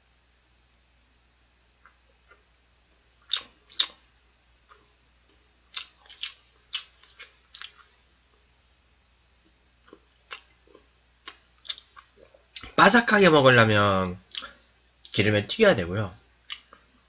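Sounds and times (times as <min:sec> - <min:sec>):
chewing: 0:01.8 - 0:02.5, 0:03.2 - 0:04.0, 0:04.7 - 0:08.0, 0:09.4 - 0:12.7, 0:14.3 - 0:15.2, 0:16.4 - 0:16.9.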